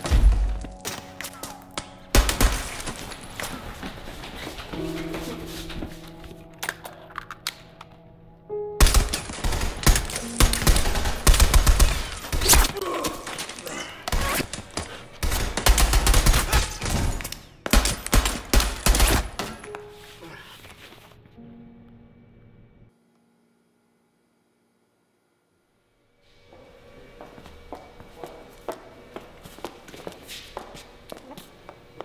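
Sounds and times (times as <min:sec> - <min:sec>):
background music: 0:00.0 - 0:23.6.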